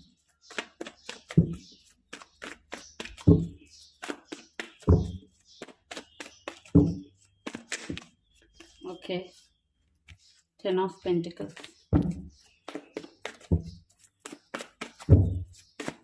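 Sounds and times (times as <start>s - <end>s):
cards being shuffled: 7.4s - 8.8s, 12.6s - 15.2s.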